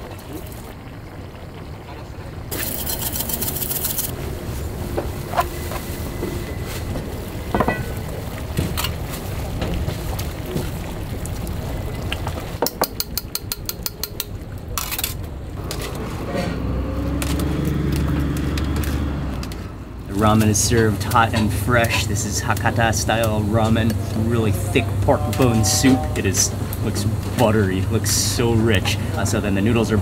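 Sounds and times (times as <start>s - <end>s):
bowls and utensils clinking: 2.5s - 4.2s, 5.3s - 8.2s.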